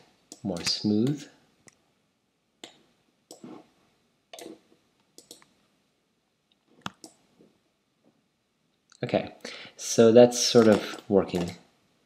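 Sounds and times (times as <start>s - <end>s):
computer mouse and keyboard clicking: 4.3s - 4.6s, 5.2s - 5.5s, 10.5s - 11.6s.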